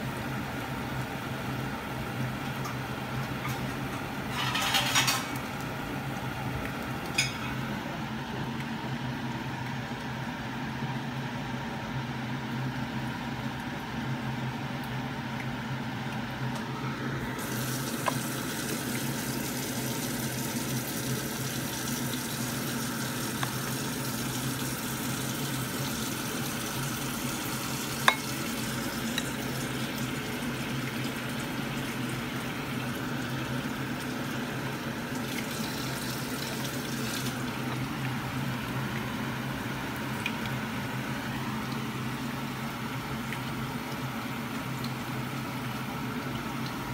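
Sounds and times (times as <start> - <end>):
metal spoon clinking ceramic bowl: 28.0 - 28.3.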